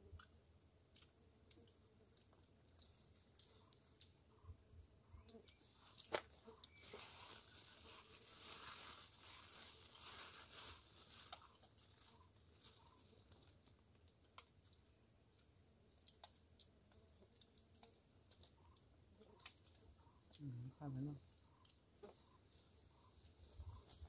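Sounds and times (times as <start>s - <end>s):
plastic bag crinkling: 5.8s - 13.8s.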